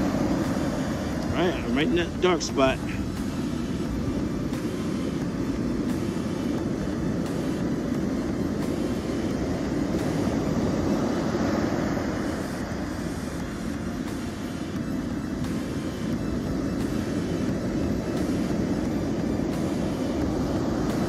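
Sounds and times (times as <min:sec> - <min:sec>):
surf breaking on a beach: 0:00.0 - 0:21.0.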